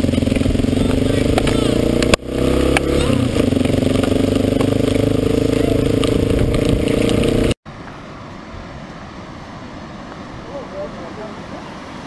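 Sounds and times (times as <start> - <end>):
motorcycle engine running: 0.0 - 7.6
steady outdoor hiss: 0.0 - 12.0
wind noise: 0.0 - 12.0.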